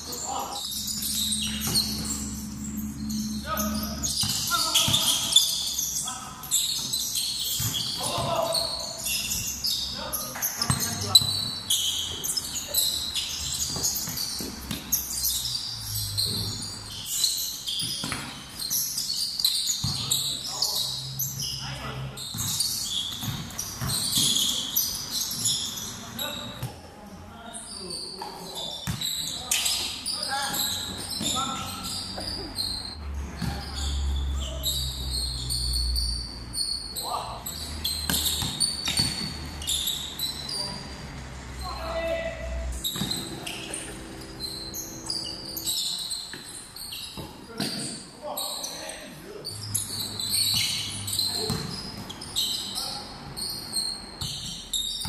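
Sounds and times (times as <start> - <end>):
players' voices: 0.0 - 13.6, 33.2 - 34.8, 40.5 - 50.3
shoes squeaking on floor: 0.0 - 26.8, 27.5 - 55.0
basketball bouncing on hard court: 7.4 - 8.4, 10.6 - 11.6, 19.8 - 20.2, 22.3 - 24.5, 28.8 - 29.1, 38.0 - 39.4, 43.0 - 43.3, 51.4 - 52.0.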